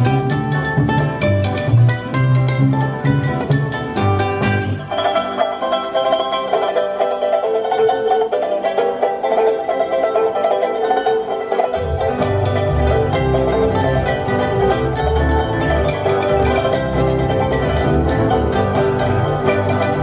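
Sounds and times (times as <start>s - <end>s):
plucked string instruments: 0.0s - 20.0s
bass line: 11.8s - 20.0s.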